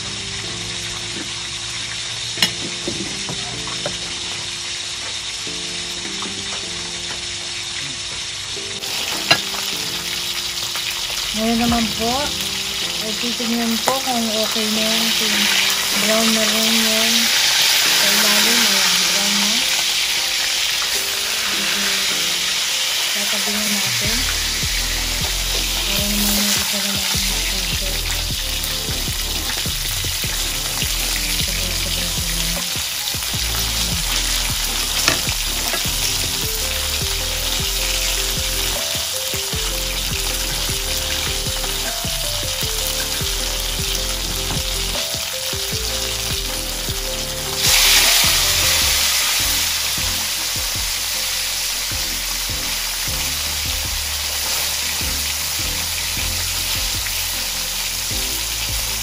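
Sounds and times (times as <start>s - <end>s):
fish sizzling in hot oil: 0.0s - 59.0s.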